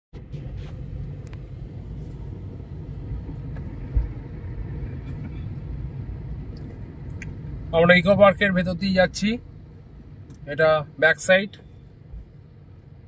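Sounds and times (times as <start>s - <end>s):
car engine and tyres rumbling: 0.1s - 13.0s.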